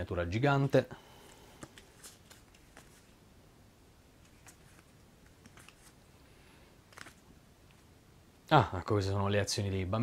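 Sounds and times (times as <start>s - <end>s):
playing cards clicking and rustling: 1.3s - 3.2s, 4.2s - 6.1s, 6.8s - 7.9s.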